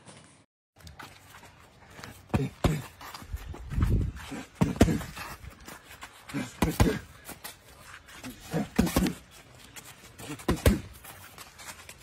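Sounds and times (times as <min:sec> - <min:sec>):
boxing gloves slapping: 0:04.6 - 0:05.4, 0:06.3 - 0:07.1, 0:08.2 - 0:09.3, 0:10.2 - 0:11.1.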